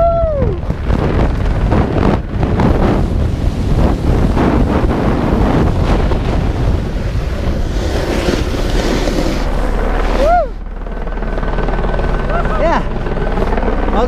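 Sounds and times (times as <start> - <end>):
wind buffeting microphone: 0.0 - 14.0
snowboard sliding through slushy snow: 2.4 - 10.4.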